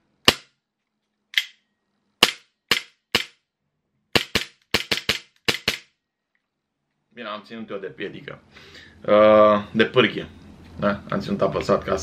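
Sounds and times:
airsoft pistol dry-firing: 4.1 - 5.9.

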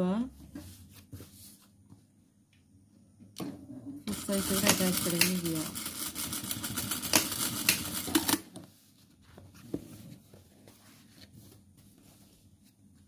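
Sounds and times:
sewing machine stitching fast: 4.1 - 8.4.

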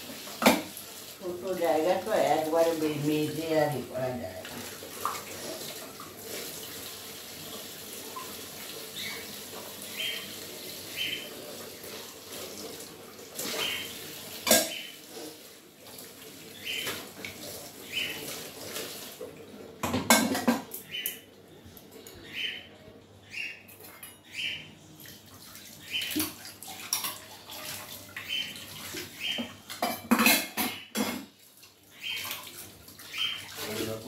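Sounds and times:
tap running into sink: 0.2 - 0.8
dishes clattering: 14.4 - 14.9, 19.8 - 20.9, 29.3 - 31.4.

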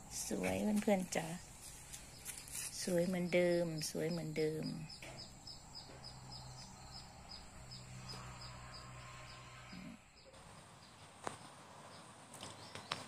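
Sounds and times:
high insect-like whine: 4.6 - 10.4.

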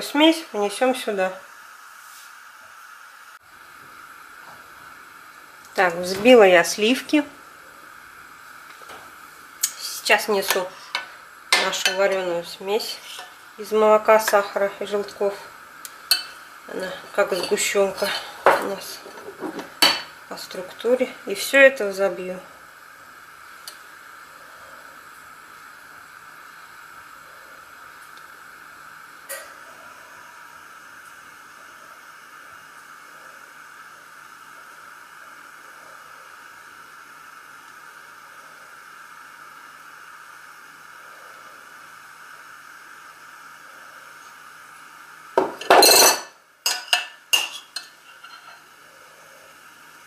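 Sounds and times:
steady hiss: 0.0 - 50.0
metal spoon scraping glass: 45.8 - 48.6.

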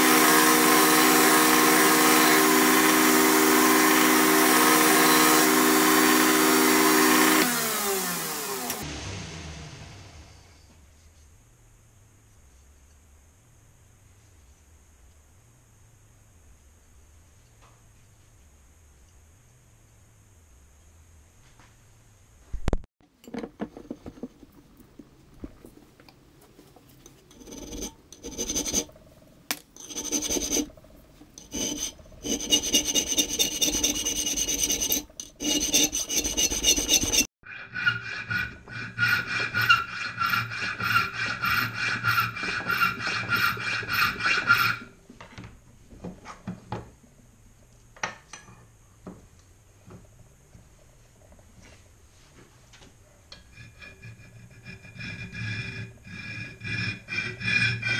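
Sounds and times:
hand file rasping on metal: 27.3 - 29.0, 29.8 - 44.8, 53.4 - 57.9.

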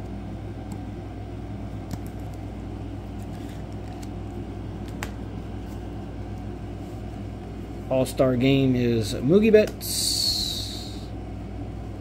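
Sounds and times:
low background hum: 0.0 - 12.0
trading cards clicking: 1.8 - 2.5.

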